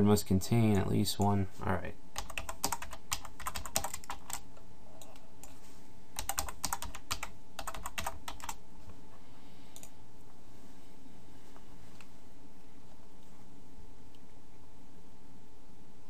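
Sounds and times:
typing on computer keyboard: 2.2 - 4.4, 6.2 - 8.6.

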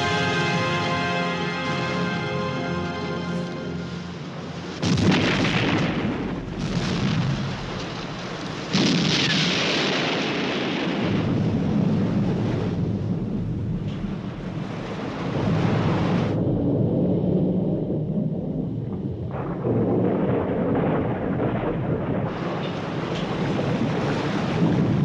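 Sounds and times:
explosions with rumbling: 4.8 - 14.7, 15.3 - 25.0.

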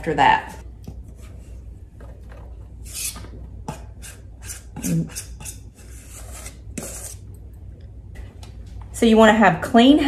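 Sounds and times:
hand scraping dough from bowl: 1.0 - 7.3.

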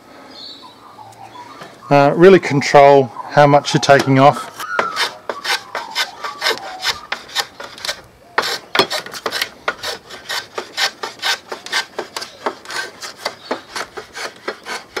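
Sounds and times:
hand tool scraping wood: 3.8 - 15.0.

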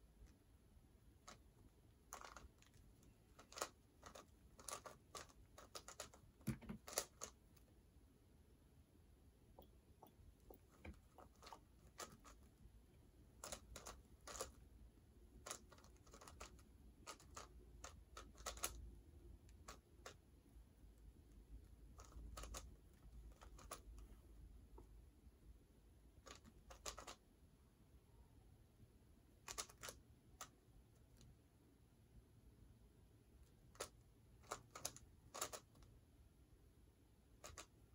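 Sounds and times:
plastic puzzle clicks and clacks: 3.4 - 7.4, 15.3 - 18.9, 37.4 - 37.7.

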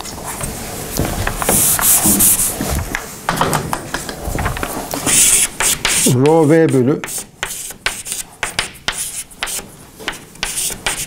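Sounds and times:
eraser rubbing chalk off blackboard: 1.2 - 2.9, 4.9 - 11.0.

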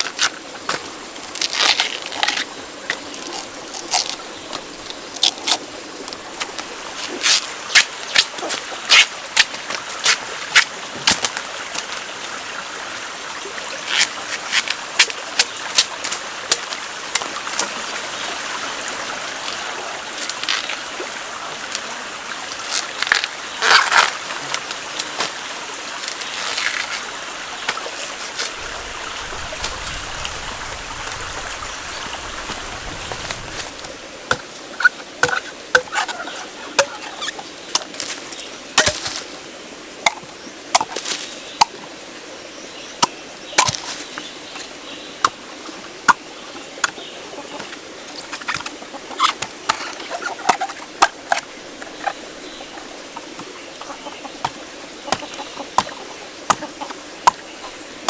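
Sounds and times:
husks tearing off bamboo shoots: 0.0 - 5.7, 6.4 - 11.4, 22.6 - 25.4, 26.0 - 28.7.

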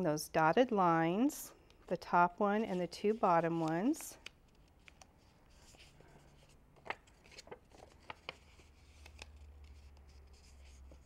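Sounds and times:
paper being folded: 2.6 - 11.0.

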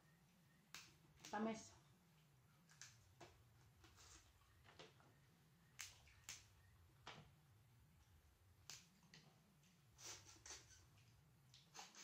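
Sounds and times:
low steady hum: 0.0 - 11.8
crab shell clicks and snaps: 8.6 - 9.2.

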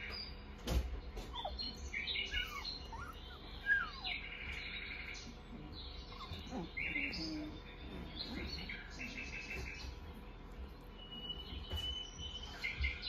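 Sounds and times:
puppies squeaking and whimpering: 1.1 - 13.0
buzzy puppy squeals: 1.3 - 4.4, 6.1 - 7.6.

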